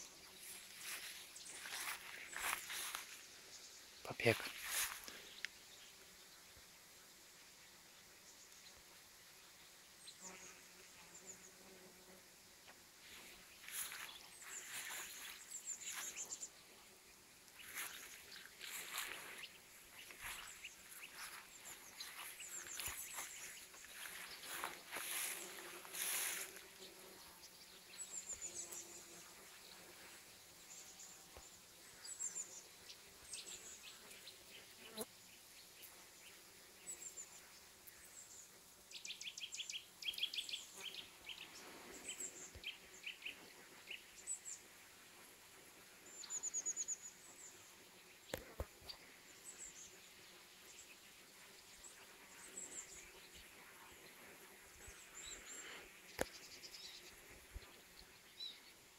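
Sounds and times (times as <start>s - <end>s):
small birds chirping: 0.0s - 6.6s, 8.0s - 44.8s, 46.0s - 58.9s
bees buzzing: 17.6s - 27.3s.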